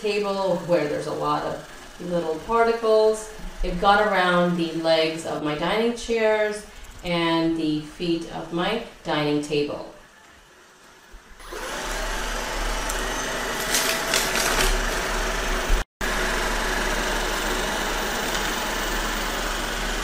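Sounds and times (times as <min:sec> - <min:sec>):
robot vacuum whirring: 0:11.4 - 0:20.0.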